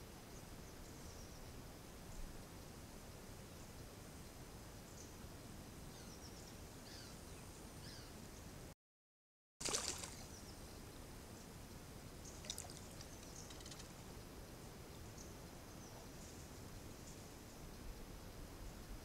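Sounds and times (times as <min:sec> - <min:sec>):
background hiss: 0:00.0 - 0:08.7, 0:09.6 - 0:19.0
bear splashing water: 0:09.6 - 0:10.2, 0:12.4 - 0:13.2
bird chirps: 0:12.2 - 0:13.9.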